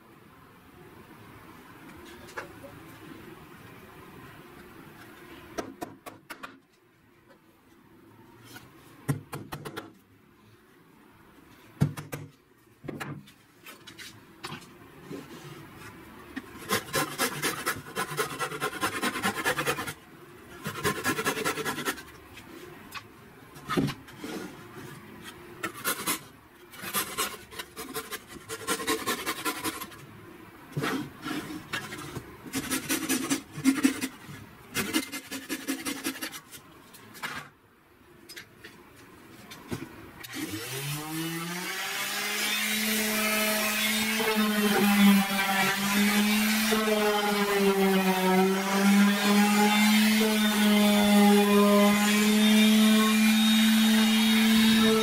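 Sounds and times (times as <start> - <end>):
hand saw rasping through wood: 16.6 - 20.0, 20.6 - 22.1, 25.6 - 30.0, 30.9 - 34.2, 34.8 - 36.4.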